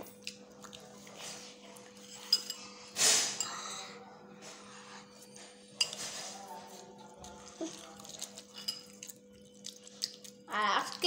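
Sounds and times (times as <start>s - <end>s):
spoon clinking on ceramic bowl: 8.2s - 9.8s.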